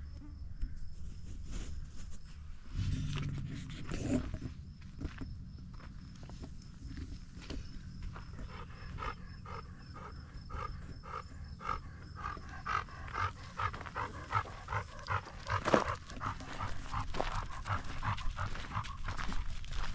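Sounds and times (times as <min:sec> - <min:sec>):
dog panting: 0:08.1 - 0:19.9.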